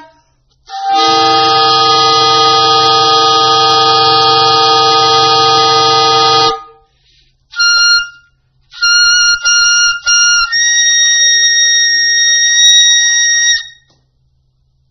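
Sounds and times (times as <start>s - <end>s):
soprano saxophone: 0.0s - 6.8s.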